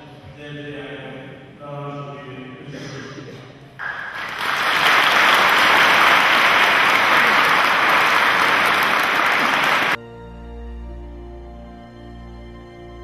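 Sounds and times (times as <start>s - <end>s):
audience applause: 3.8s - 10.0s
soft music: 10.0s - 13.0s.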